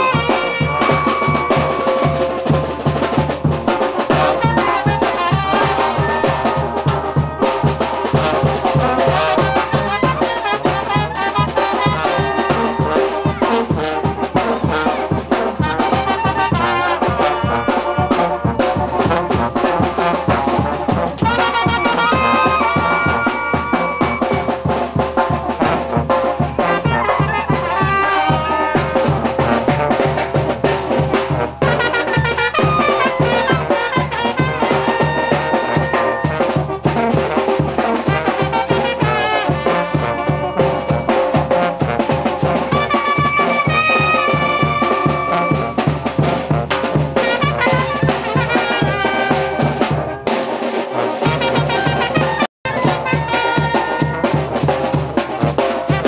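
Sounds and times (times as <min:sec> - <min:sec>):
brass band music: 0:00.0 - 0:56.0
drums: 0:00.0 - 0:56.0.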